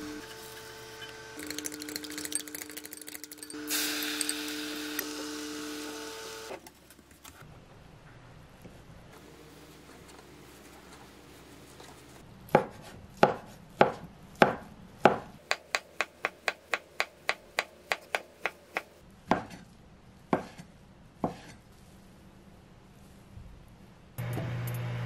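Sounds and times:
knife chopping on wooden board: 12.5s - 19.6s, 20.3s - 21.6s.

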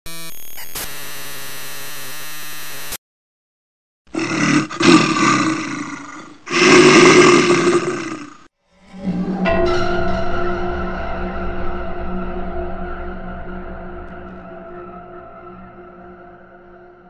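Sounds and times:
long rough roars: 4.2s - 8.5s.

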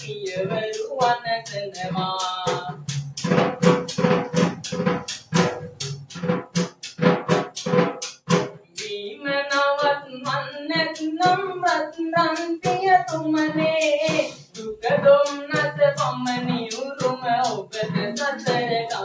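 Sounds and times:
man singing: 0.0s - 3.0s, 8.8s - 19.0s.

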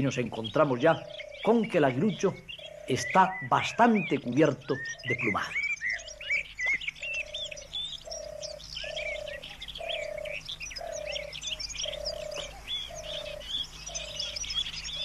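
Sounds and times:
small birds chirping and whistling: 0.0s - 15.0s.

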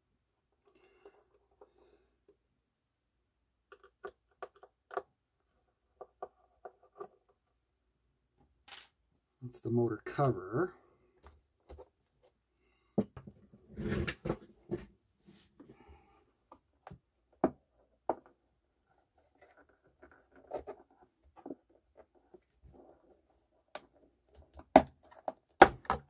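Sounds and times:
scraping on plastic: 13.6s - 14.9s.

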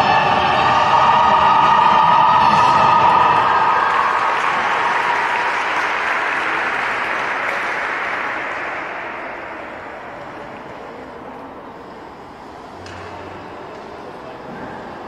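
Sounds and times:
audience applause: 0.0s - 10.7s.

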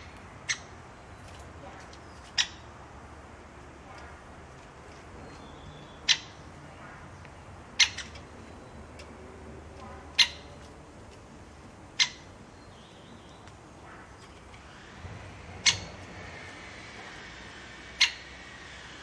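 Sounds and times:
woodpecker sharp calls: 0.0s - 0.8s, 2.0s - 2.7s, 5.2s - 10.7s, 11.9s - 14.3s, 15.5s - 16.4s, 17.8s - 18.8s.

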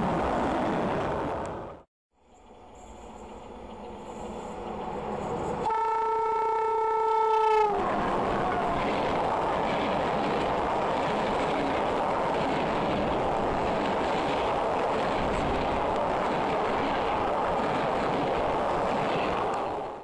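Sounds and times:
train wheels on rails: 7.3s - 20.0s.

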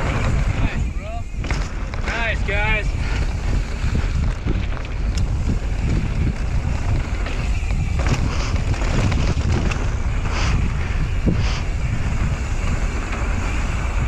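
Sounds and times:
bike rattles and clicks: 0.0s - 14.0s
gravelly tyre hiss: 0.0s - 14.0s
tyres crunching over dirt: 0.0s - 14.0s
wind buffeting microphone: 0.0s - 14.0s.

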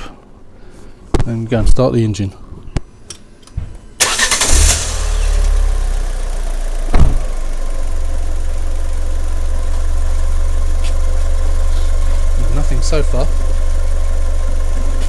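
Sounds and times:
car engine starting and idling: 4.0s - 15.0s
sharp knock: 6.9s - 7.3s.

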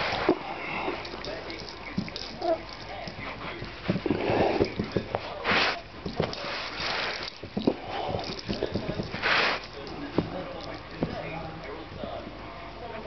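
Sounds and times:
puppy snuffling breaths: 0.0s - 11.0s
paws and hands thumping on carpet: 1.2s - 11.6s.

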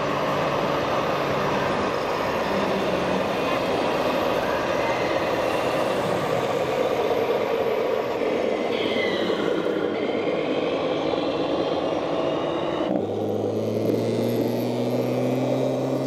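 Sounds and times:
simulated diesel engine sound: 0.0s - 16.0s.

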